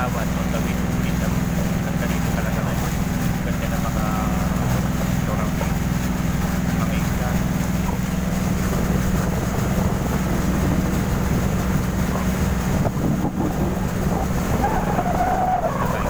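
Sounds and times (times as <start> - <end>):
boat engine running: 0.0 - 16.0
wind on microphone: 4.3 - 16.0.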